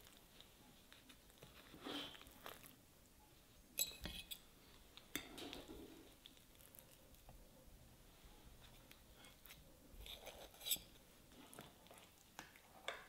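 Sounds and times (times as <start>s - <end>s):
soft rustles: 0.0s - 2.8s.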